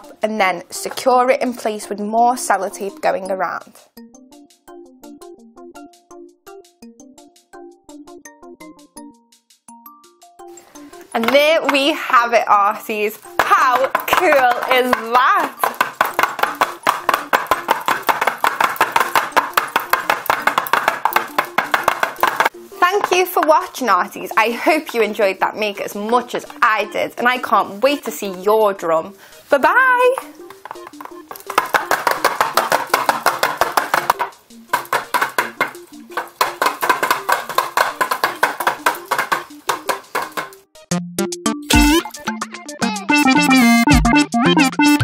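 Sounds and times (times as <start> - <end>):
background tune: 0.0 - 45.0
pellet drum rattling: 11.0 - 28.6, 29.6 - 40.6.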